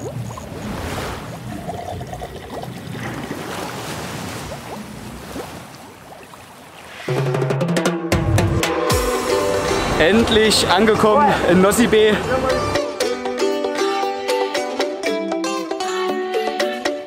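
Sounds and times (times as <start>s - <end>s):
music with sustained tones: 7.1s - 17.0s.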